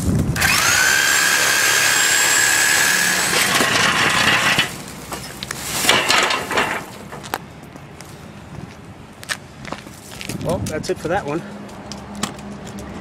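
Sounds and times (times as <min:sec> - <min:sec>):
power saw cutting steel: 0:00.4 - 0:04.9.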